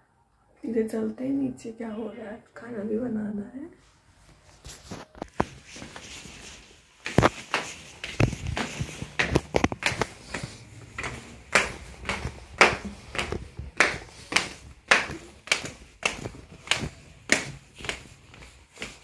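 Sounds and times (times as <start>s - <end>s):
footsteps walking down stairs: 4.7s - 19.0s.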